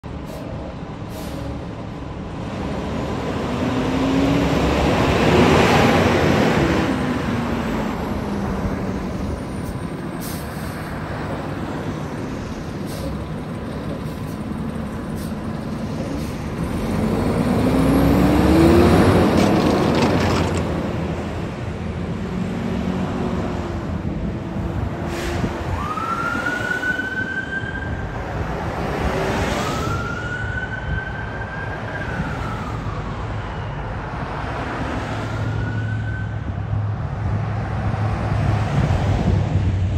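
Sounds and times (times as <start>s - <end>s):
diesel engine accelerating: 0.8s - 26.0s
siren wailing: 25.7s - 28.2s, 29.5s - 34.4s, 35.1s - 36.6s.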